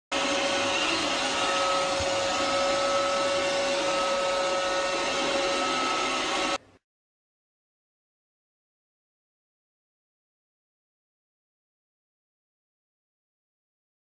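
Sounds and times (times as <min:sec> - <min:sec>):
robot vacuum cleaner running: 0:00.1 - 0:06.6.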